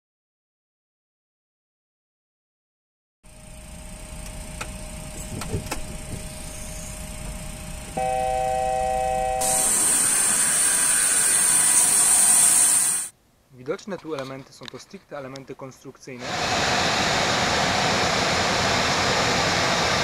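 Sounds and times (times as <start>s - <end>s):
loud multi-pitched tone: 4.8s - 13.1s
loud steady hiss: 9.2s - 13.2s, 15.7s - 20.0s.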